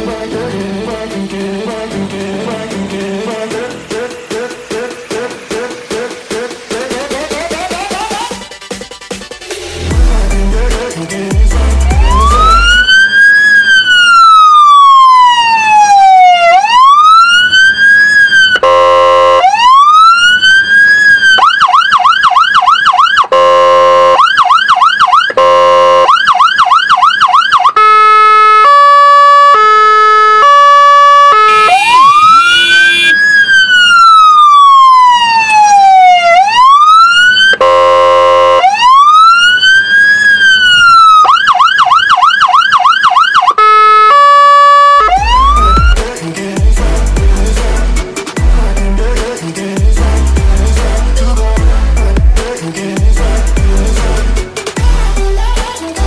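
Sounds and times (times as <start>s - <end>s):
fire engine siren: 11.8s - 46.0s
short horn blasts: 18.6s - 19.4s, 23.3s - 24.2s, 25.4s - 26.1s, 27.8s - 33.2s, 37.6s - 38.6s.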